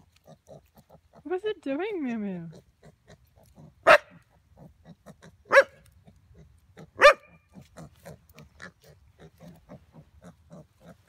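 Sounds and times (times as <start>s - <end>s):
dogs grunting: 2.8s - 11.0s
dog barking: 3.8s - 4.2s, 5.5s - 5.8s, 7.0s - 7.3s.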